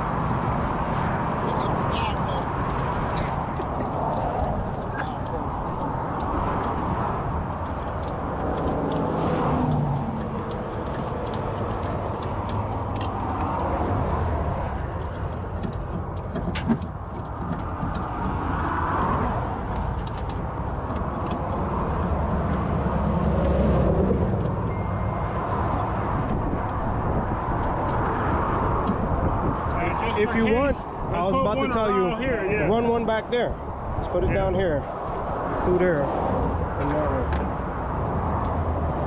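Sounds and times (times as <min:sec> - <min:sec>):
highway traffic: 0:00.0 - 0:39.0.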